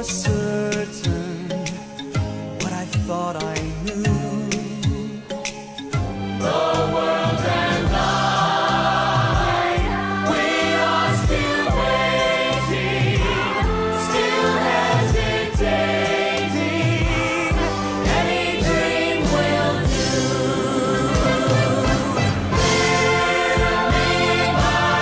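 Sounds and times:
band with bass and drums: 0:00.2 - 0:25.0
choir singing: 0:06.4 - 0:25.0.

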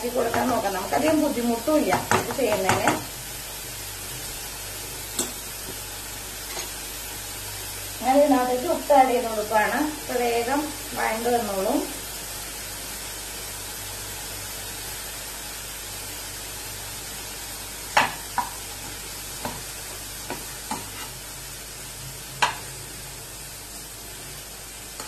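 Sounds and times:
vegetables sizzling in a pan: 0:00.0 - 0:25.0
spatula knocking against pan: 0:01.9 - 0:03.1, 0:18.0 - 0:18.6.

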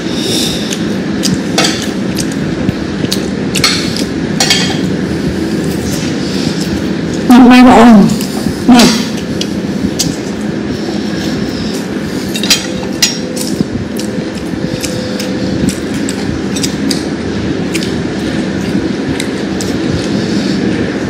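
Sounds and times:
steady rumbling background noise: 0:00.0 - 0:21.0
sharp clicks of eating by hand: 0:00.6 - 0:04.2, 0:09.1 - 0:10.4, 0:12.3 - 0:20.2.

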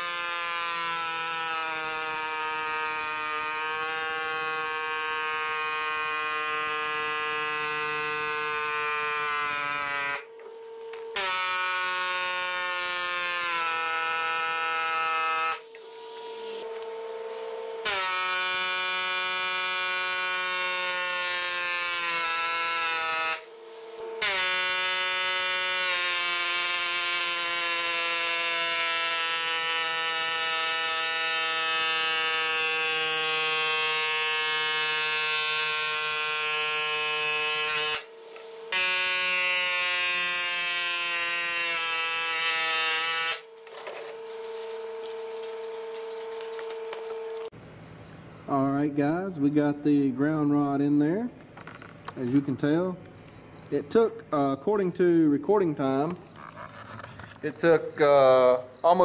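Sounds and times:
pneumatic air hammer buzzing: 0:00.0 - 0:16.8, 0:17.8 - 0:47.6.

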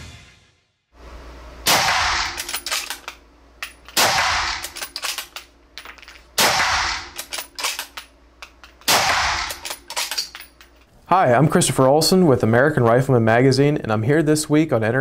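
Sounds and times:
rifle shots: 0:01.6 - 0:03.0, 0:04.0 - 0:05.3, 0:06.4 - 0:08.0, 0:08.9 - 0:10.1.

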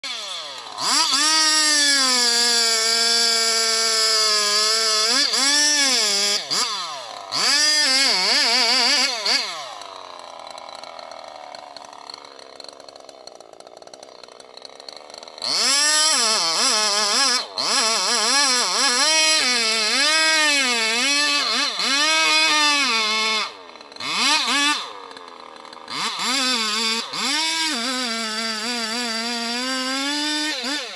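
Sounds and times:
chainsaw cutting wood: 0:00.0 - 0:30.9.

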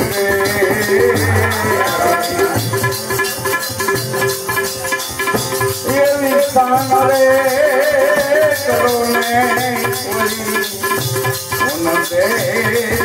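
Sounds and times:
man singing: 0:00.0 - 0:03.0, 0:05.8 - 0:13.0
harmonium notes: 0:00.0 - 0:13.0
rattling percussion: 0:00.0 - 0:13.0.

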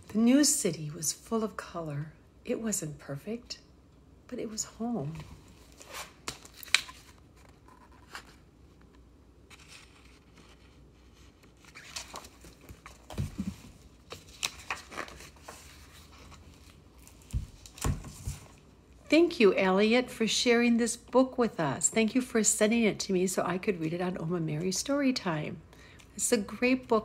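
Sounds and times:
book pages rustling: 0:05.2 - 0:18.7.

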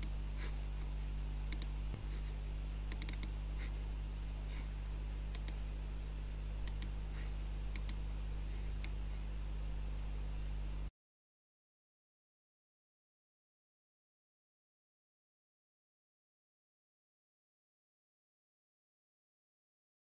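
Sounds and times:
steady low hum: 0:00.0 - 0:10.9
computer mouse clicking: 0:01.5 - 0:02.0, 0:02.9 - 0:03.4, 0:05.3 - 0:05.6, 0:06.6 - 0:07.0, 0:07.7 - 0:08.0, 0:08.8 - 0:09.0.

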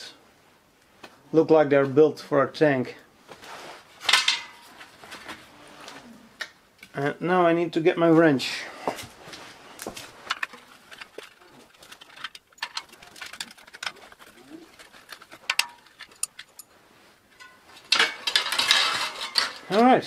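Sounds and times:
metal clatter: 0:04.0 - 0:04.8, 0:10.2 - 0:16.7, 0:17.3 - 0:19.8.

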